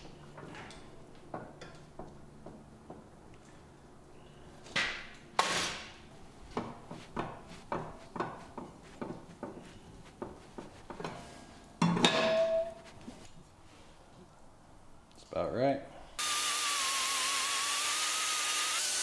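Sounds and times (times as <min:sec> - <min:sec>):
wooden block striking metal: 0:11.8 - 0:12.8
ringing knock: 0:11.9 - 0:12.8.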